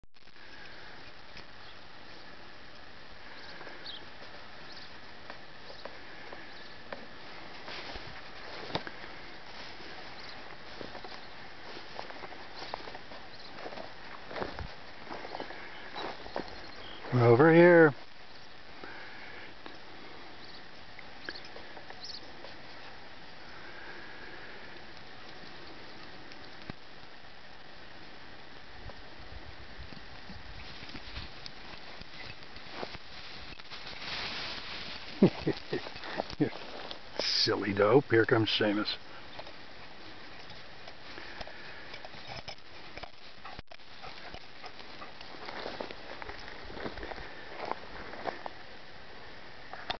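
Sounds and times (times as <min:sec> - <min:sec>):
faint steady hiss: 0:00.2 - 0:49.9
faint high chirps: 0:03.3 - 0:05.0, 0:20.4 - 0:22.9
dog paws rustling through hay: 0:03.6 - 0:17.2, 0:30.0 - 0:37.3, 0:42.7 - 0:48.6.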